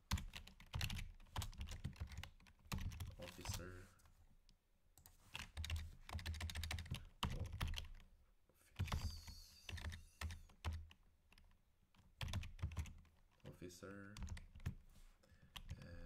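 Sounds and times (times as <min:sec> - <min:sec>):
computer keyboard typing: 0:00.1 - 0:03.7, 0:05.0 - 0:08.1, 0:08.8 - 0:13.5, 0:14.1 - 0:14.8, 0:15.5 - 0:16.0.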